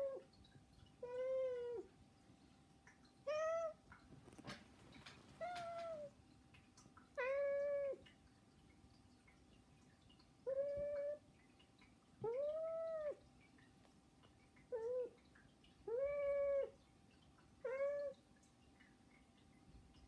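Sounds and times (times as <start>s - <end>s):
cat meowing: 3.3s - 3.8s, 5.4s - 6.1s, 7.2s - 8.0s, 10.5s - 11.2s, 12.2s - 13.2s, 15.9s - 16.8s, 17.6s - 18.2s.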